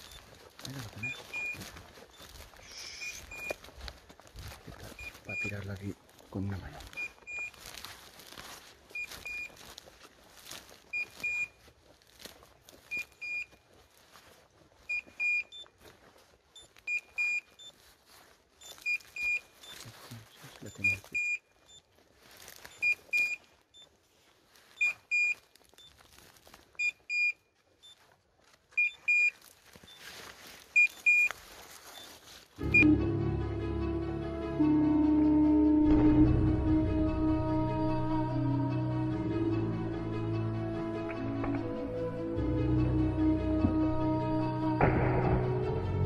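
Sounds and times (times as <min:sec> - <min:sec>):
brush rustling: 0:00.0 - 0:32.7
short high double beeps: 0:01.0 - 0:03.6.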